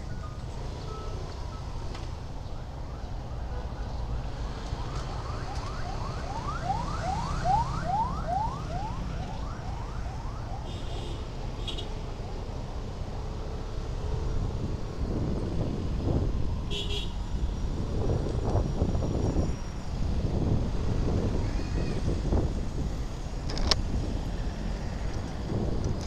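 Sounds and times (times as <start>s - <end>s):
road noise: 0.0s - 26.0s
siren whooping: 4.5s - 11.0s.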